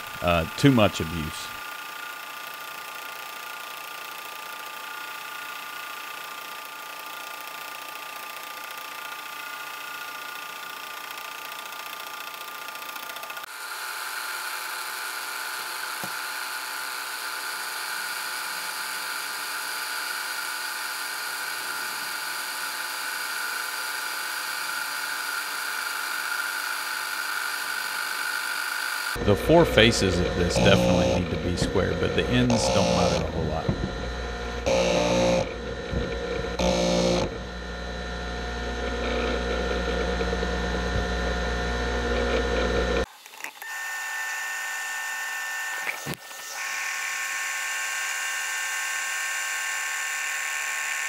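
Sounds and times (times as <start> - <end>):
tool bit cutting metal: 2.4 - 51.0
metal lathe whining: 10.8 - 51.0.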